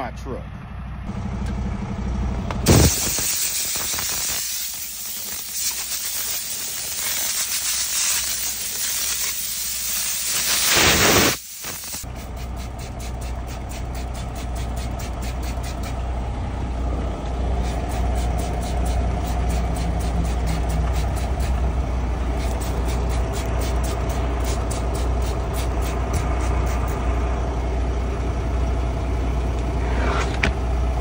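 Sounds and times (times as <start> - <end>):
low engine hum: 0.0 - 10.2, 12.0 - 31.0
compressed air hissing: 2.7 - 16.0, 17.6 - 21.7, 22.3 - 27.0
spray bottle spritzes: 2.7 - 16.0, 17.6 - 21.6, 22.4 - 27.0.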